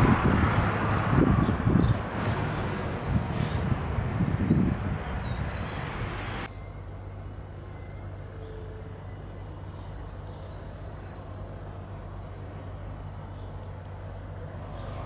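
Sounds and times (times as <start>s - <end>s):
loud rushing noise: 0.0s - 6.5s
diesel locomotive engine drone: 0.0s - 15.0s.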